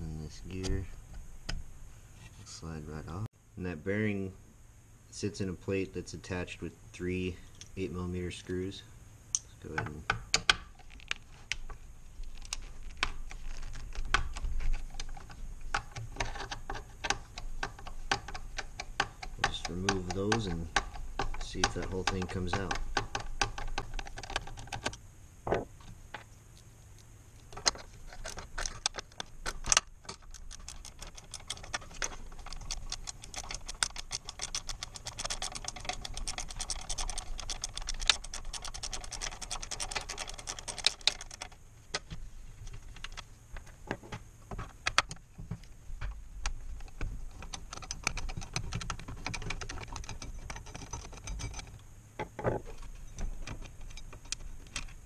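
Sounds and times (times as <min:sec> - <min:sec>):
rapid fine metallic clicks: 0:15.0 - 0:25.0, 0:27.6 - 0:41.6, 0:46.4 - 0:51.7.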